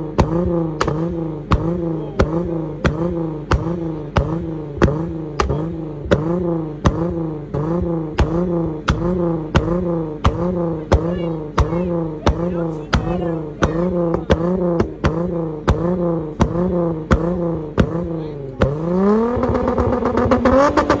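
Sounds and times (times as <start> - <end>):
car engine revving high: 0.0 - 21.0
exhaust pops and crackle: 0.0 - 21.0.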